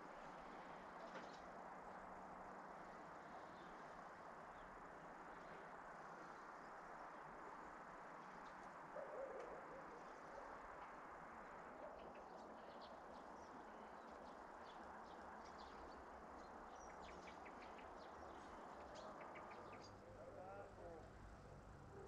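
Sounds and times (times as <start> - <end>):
small birds chirping: 11.6 - 21.0.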